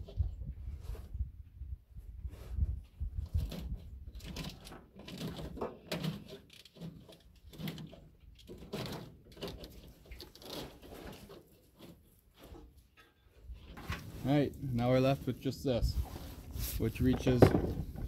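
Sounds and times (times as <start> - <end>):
plastic wiring loom rustling: 3.3 - 13.0.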